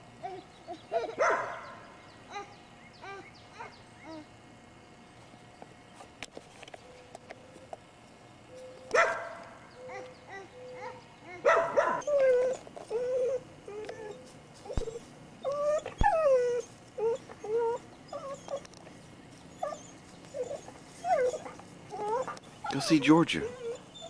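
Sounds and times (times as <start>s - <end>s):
dog whimpering: 0.2s - 1.3s, 2.3s - 4.3s, 9.8s - 18.8s, 19.5s - 24.0s
dog yelp: 0.2s - 4.2s, 8.9s - 18.7s, 19.5s - 24.0s.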